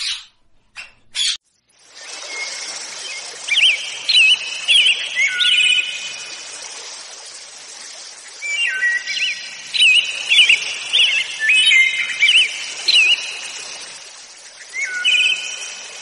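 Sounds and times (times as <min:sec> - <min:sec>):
songbird chirping: 0:00.0 - 0:16.0
steady background hiss: 0:01.5 - 0:16.0.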